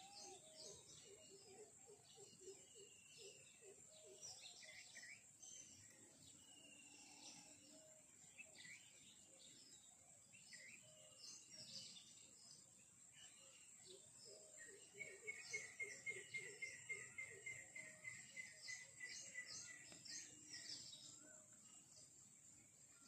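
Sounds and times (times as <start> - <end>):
bird chirps and calls: 13.2 - 21.2.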